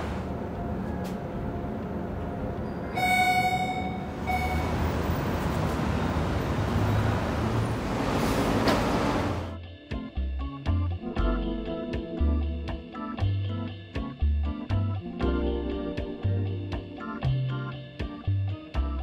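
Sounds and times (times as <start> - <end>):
aerial tram rumble and hiss: 0.0 - 2.9, 3.7 - 9.5
pitched tone: 2.7 - 4.9.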